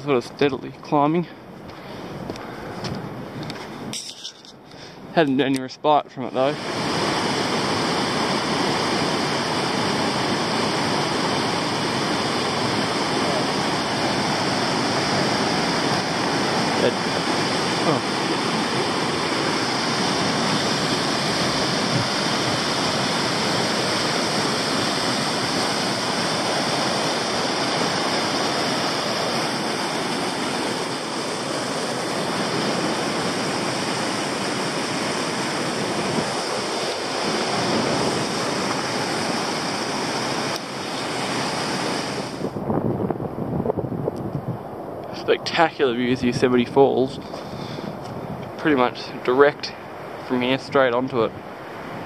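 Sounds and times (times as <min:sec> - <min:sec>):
waterfall roaring: 0:06.2 - 0:43.5, 0:44.6 - 0:52.0.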